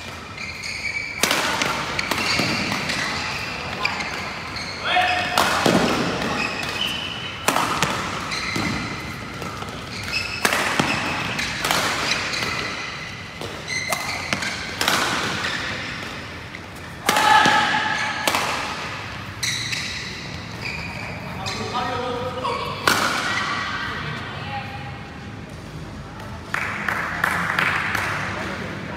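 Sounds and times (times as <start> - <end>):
shoe squeaks on court floor: 0.0 - 16.1, 19.3 - 22.8
racket striking shuttlecock: 5.3 - 16.2.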